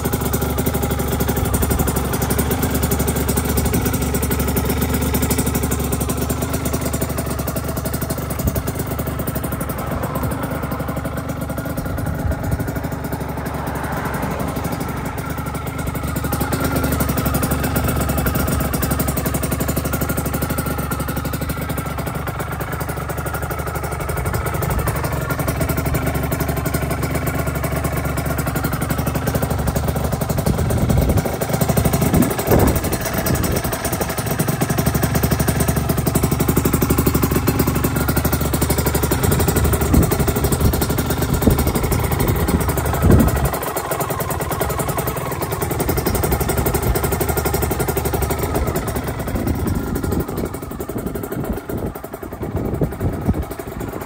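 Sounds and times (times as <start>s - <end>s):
two-stroke motorcycle engine idling: 0.0s - 54.0s.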